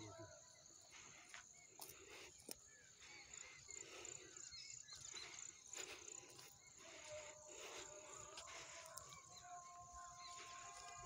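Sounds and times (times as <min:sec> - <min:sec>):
footsteps on dry grass: 0:05.2 - 0:11.0.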